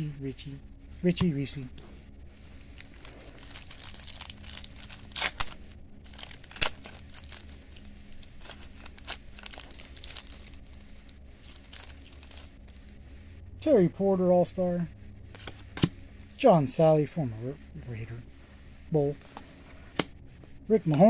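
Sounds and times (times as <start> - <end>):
sharp wrapper crackles: 1.8 - 13.0
card pack wrapper tearing: 2.5 - 13.0.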